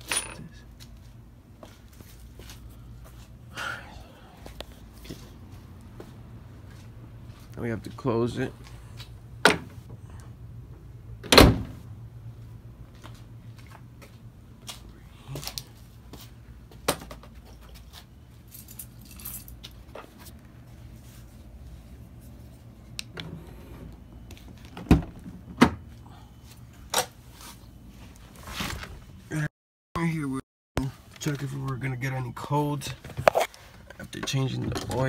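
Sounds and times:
car hood slamming: 0:11.2 - 0:11.8.

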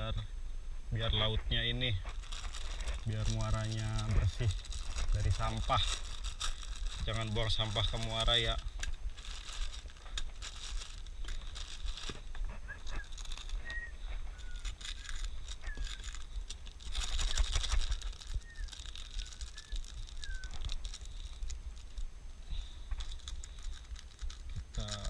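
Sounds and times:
plastic packaging crinkling and tearing: 0:01.6 - 0:25.0
bird chirping: 0:12.5 - 0:16.3, 0:17.1 - 0:21.2.

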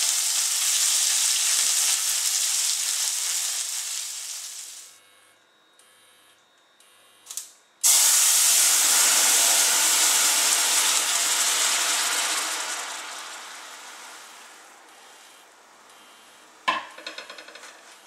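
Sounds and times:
bubbling hiss: 0:00.0 - 0:04.9, 0:07.8 - 0:15.4
loud sizzle in hot pan: 0:00.0 - 0:04.9, 0:07.8 - 0:15.2
broth splashing through strainer: 0:07.8 - 0:14.9.

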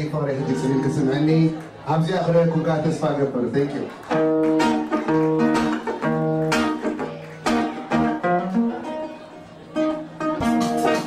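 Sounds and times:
plucked guitar-like melody: 0:03.8 - 0:11.0.

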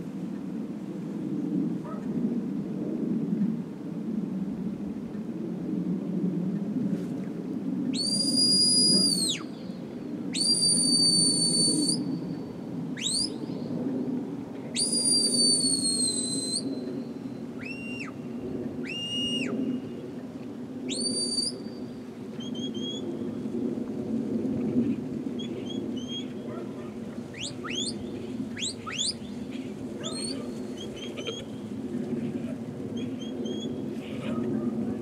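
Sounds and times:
high whistle commands: 0:08.0 - 0:09.4, 0:10.4 - 0:12.0, 0:13.0 - 0:13.4, 0:14.8 - 0:16.8, 0:17.6 - 0:18.2, 0:18.8 - 0:19.6, 0:20.9 - 0:21.7, 0:27.4 - 0:28.0, 0:28.6 - 0:29.2.

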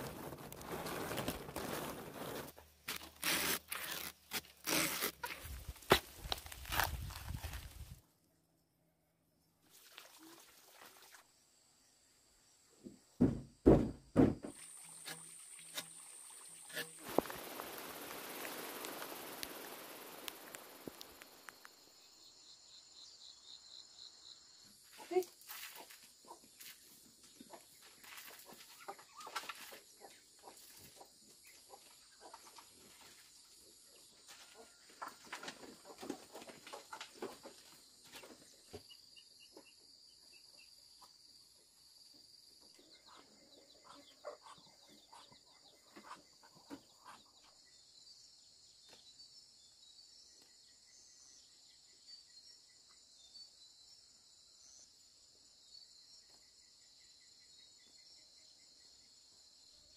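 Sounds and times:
crickets and insects chirping: 0:14.4 - 0:31.6.

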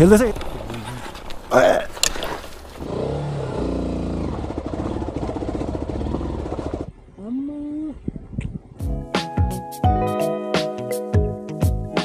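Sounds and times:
dirt bike engine revving: 0:02.8 - 0:06.9.

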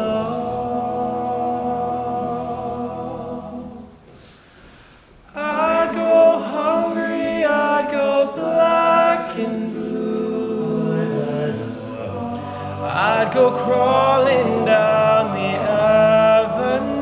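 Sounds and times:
male group singing in harmony: 0:00.0 - 0:04.0, 0:05.3 - 0:17.0.

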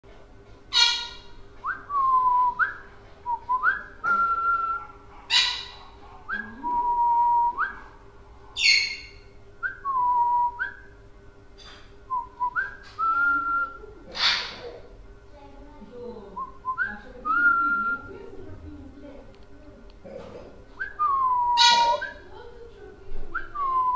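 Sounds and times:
parrot squawking harshly: 0:00.7 - 0:01.4, 0:05.3 - 0:05.8, 0:08.6 - 0:09.2, 0:14.1 - 0:14.7, 0:21.6 - 0:22.1
parrot whistling: 0:03.6 - 0:07.8, 0:08.6 - 0:10.9, 0:20.8 - 0:22.2.

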